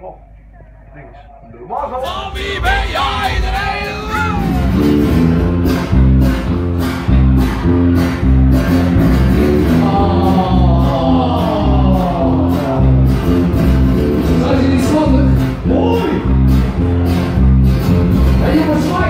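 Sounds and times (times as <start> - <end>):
group of voices singing: 1.8 - 5.4
live pop song through speakers: 2.0 - 15.4.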